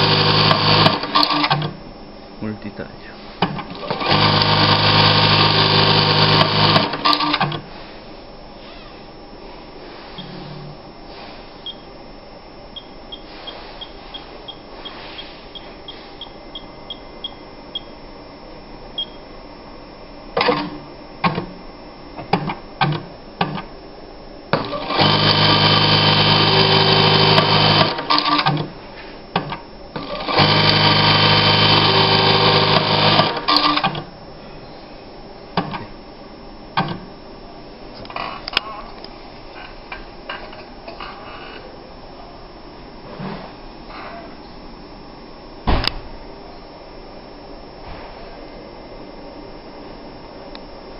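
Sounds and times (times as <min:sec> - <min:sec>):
sewing machine running fast: 0:00.0 - 0:01.6, 0:03.7 - 0:07.5, 0:24.6 - 0:28.6, 0:30.0 - 0:33.9.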